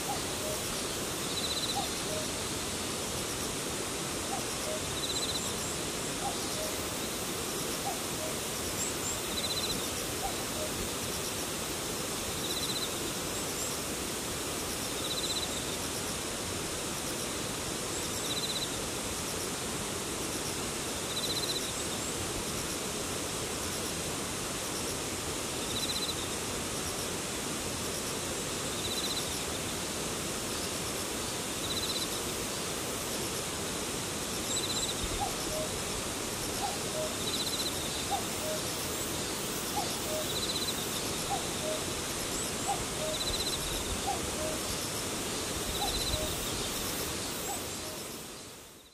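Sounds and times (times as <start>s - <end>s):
grass insects hissing: 0.0s - 23.9s, 24.5s - 48.9s
pulsing buzzy insect call: 34.4s - 48.9s
cuckoo calling: 36.6s - 38.7s, 41.2s - 41.9s.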